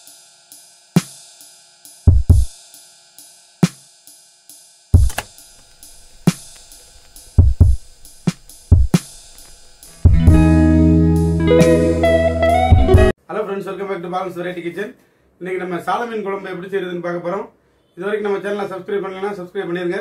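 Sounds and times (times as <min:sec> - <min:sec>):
hi-hat ticking: 0:00.0 - 0:10.4.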